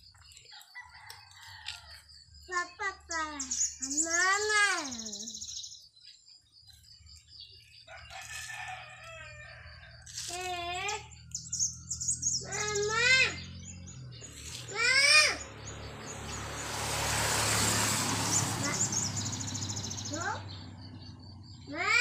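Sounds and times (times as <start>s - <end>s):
small birds chirping: 0.0s - 22.0s
rooster crowing: 0.5s - 2.1s, 7.9s - 10.1s.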